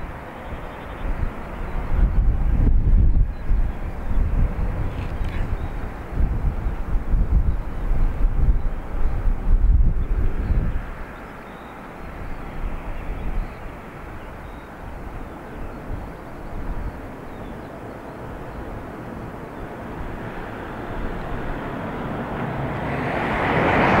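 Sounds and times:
jet engines taxiing: 0:00.0 - 0:24.0.

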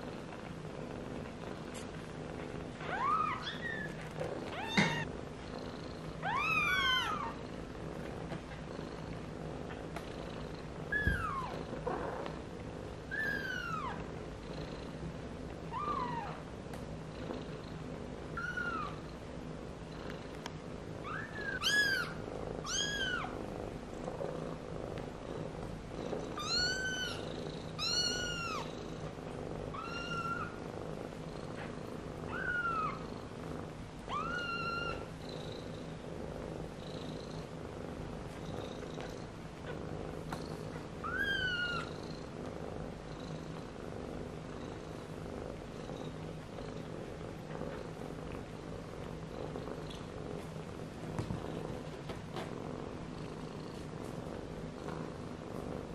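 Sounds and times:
cat purring: 0:00.0 - 0:55.9
kittens mewing: 0:02.9 - 0:05.1.

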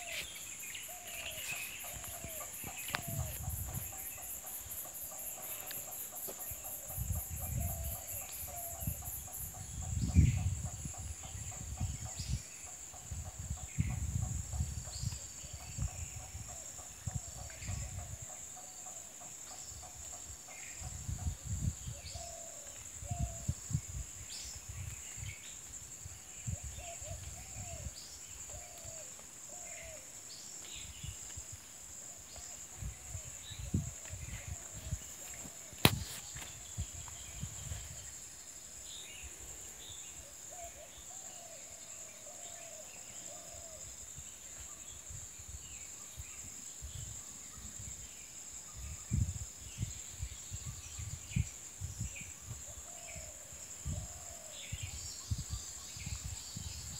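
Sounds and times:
sharp click: 0:35.8 - 0:36.2.

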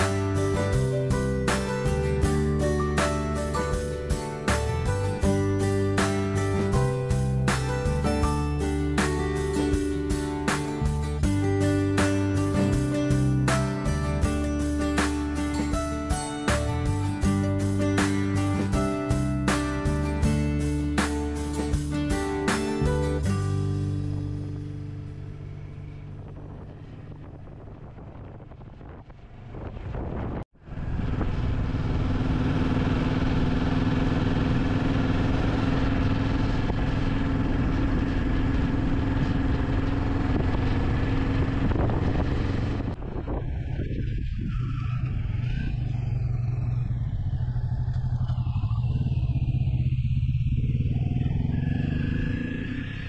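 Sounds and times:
motorcycle engine running: 0:00.0 - 0:53.0
wind rushing over microphone: 0:25.2 - 0:32.5, 0:35.9 - 0:53.0.

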